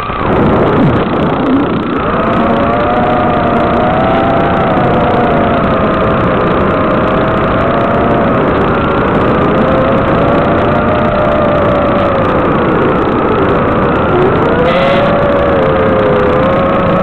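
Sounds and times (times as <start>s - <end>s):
electric motors whining: 0.0s - 17.0s.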